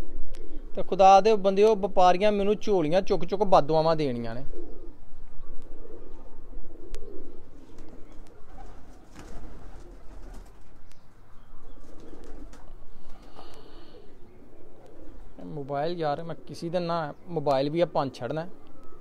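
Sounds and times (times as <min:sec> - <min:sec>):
pigeons cooing: 0:04.3 - 0:19.0.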